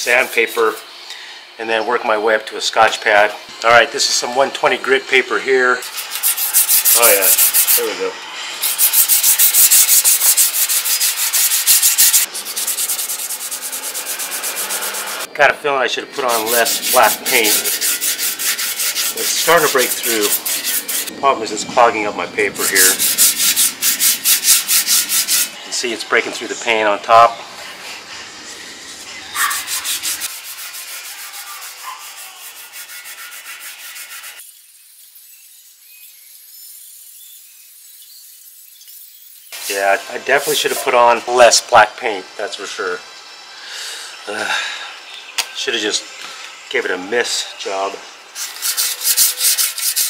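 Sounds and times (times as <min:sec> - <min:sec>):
sandpaper rubbing on metal: 0:00.0 - 0:00.8, 0:05.8 - 0:07.9, 0:08.6 - 0:15.3, 0:16.2 - 0:21.1, 0:22.6 - 0:25.6, 0:29.4 - 0:41.0, 0:48.4 - 0:50.0.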